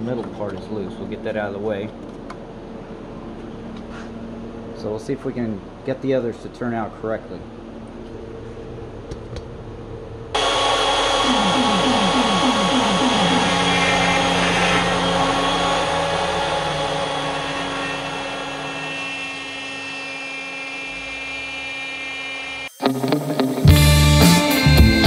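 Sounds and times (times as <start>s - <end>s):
cnc router cutting plywood: 10.4s - 22.7s
short rising whines of gantry: 10.4s - 22.8s.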